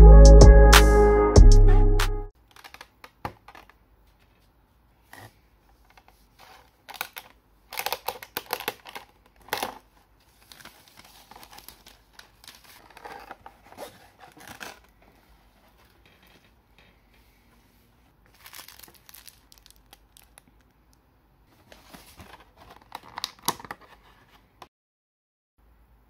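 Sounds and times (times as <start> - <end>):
plastic and cardboard crinkling: 2.4 - 17.0, 18.0 - 20.8, 21.5 - 24.6.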